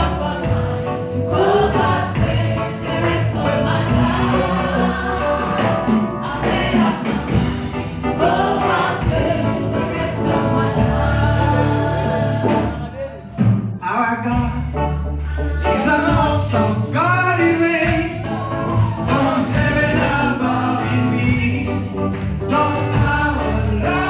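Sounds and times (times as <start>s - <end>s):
congregation singing gospel song: 0.0s - 24.0s
drums: 0.0s - 24.0s
keyboard: 0.0s - 24.0s.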